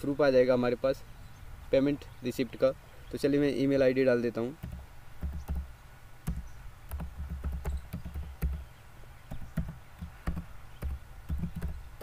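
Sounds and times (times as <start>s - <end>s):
keyboard keys clicking: 4.6s - 5.7s, 6.3s - 8.6s, 9.3s - 12.0s.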